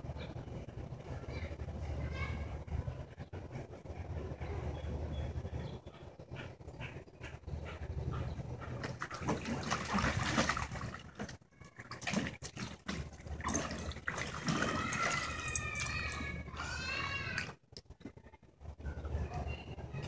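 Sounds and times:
water splashing and sloshing: 7.7 - 17.7.

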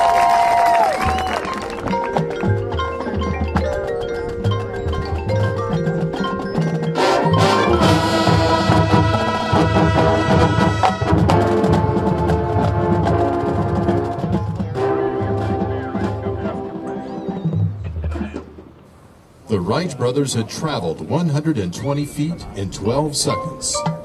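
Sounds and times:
marching band playing: 0.0 - 24.0
mallet percussion ringing: 1.0 - 11.8, 23.2 - 24.0.

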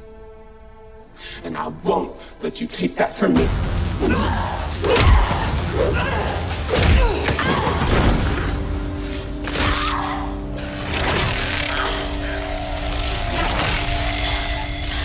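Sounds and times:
dramatic orchestral score: 0.0 - 15.0.

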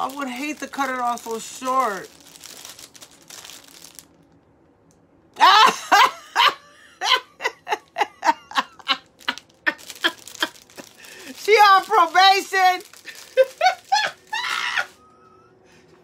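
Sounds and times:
woman laughing: 5.4 - 11.4, 13.0 - 15.4.

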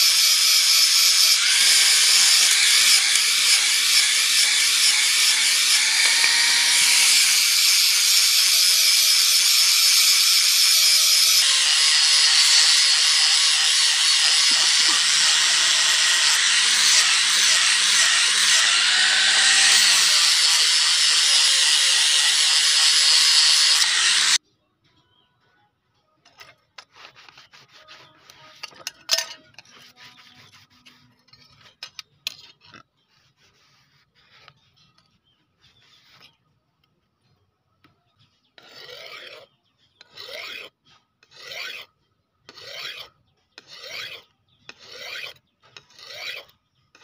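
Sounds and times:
angle grinder sanding wood: 0.0 - 24.4, 26.9 - 28.7.

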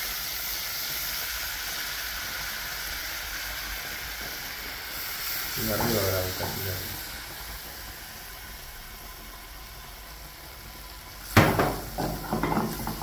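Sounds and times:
butter sizzling in a pan: 0.0 - 13.0
cookware knocks: 11.4 - 13.0.

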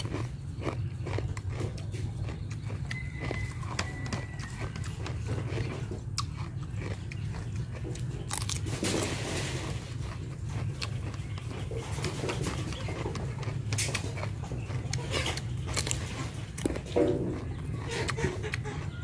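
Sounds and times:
person chewing crunchy food: 0.0 - 19.0
steady low hum: 0.0 - 19.0.

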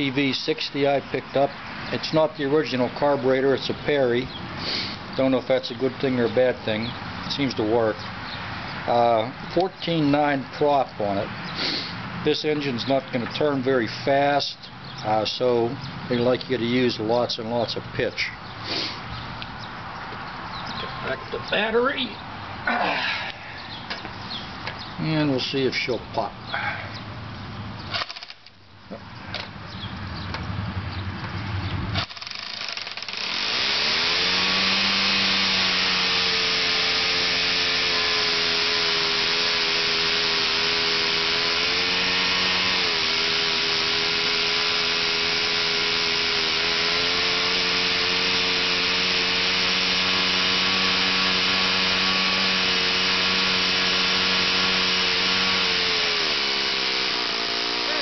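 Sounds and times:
model engine running at high speed: 0.0 - 7.6, 32.0 - 58.0.

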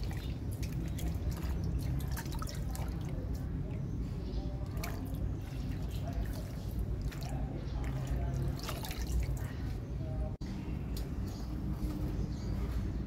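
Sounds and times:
water dripping and splashing: 0.0 - 3.9, 4.6 - 9.8.

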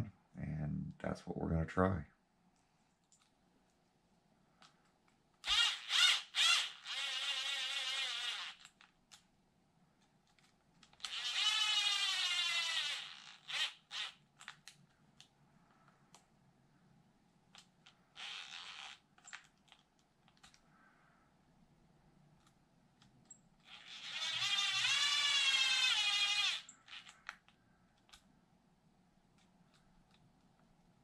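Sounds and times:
cordless drill motor whirring: 5.4 - 8.8, 11.0 - 14.2, 18.2 - 19.0, 23.7 - 27.3.

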